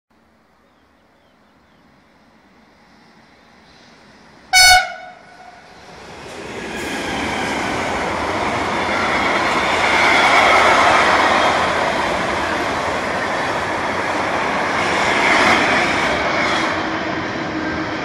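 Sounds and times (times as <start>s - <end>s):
freight train rolling past: 0.7s - 18.0s
train horn blast: 4.5s - 5.6s.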